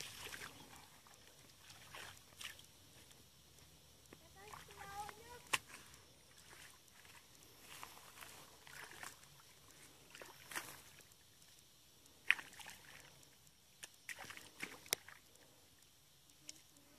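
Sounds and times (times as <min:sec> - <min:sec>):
muddy water splashing: 0:00.0 - 0:03.2, 0:04.2 - 0:11.2, 0:12.2 - 0:15.4.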